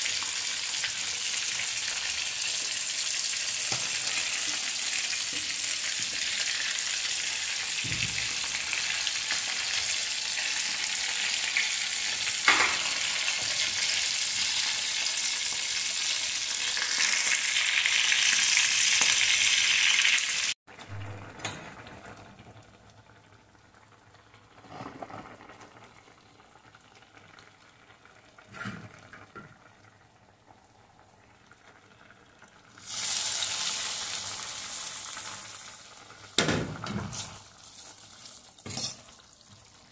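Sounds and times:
fish sizzling in oil: 0:00.0 - 0:20.6, 0:32.7 - 0:39.9.

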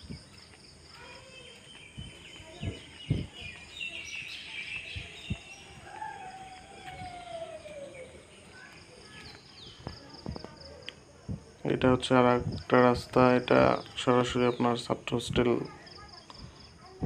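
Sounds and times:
small birds chirping: 0:00.0 - 0:17.0
low thumps from walking camera: 0:01.8 - 0:03.6, 0:04.8 - 0:07.5, 0:11.2 - 0:11.5.

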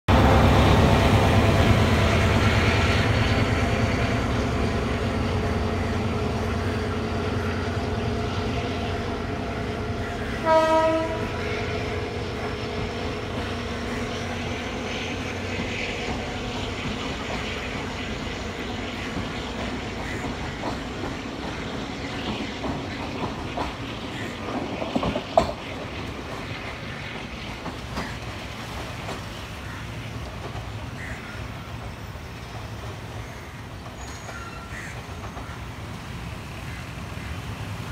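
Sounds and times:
diesel train running along track: 0:00.1 - 0:37.9
train horn blast: 0:10.3 - 0:11.6.

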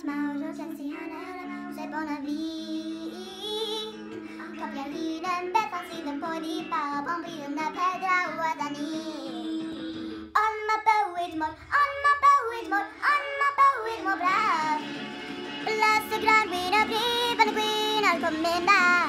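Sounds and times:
high voice singing: 0:00.0 - 0:15.0
backing music: 0:00.0 - 0:19.0.

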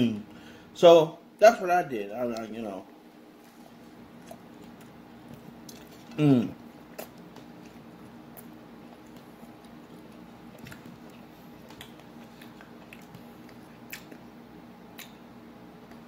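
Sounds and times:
man chewing food: 0:02.3 - 0:16.0
wet mouth clicks: 0:14.9 - 0:15.2.

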